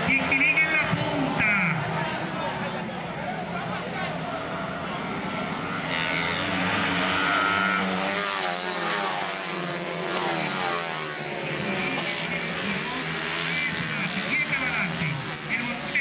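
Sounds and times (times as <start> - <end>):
racing motorcycles passing: 0.0 - 16.0.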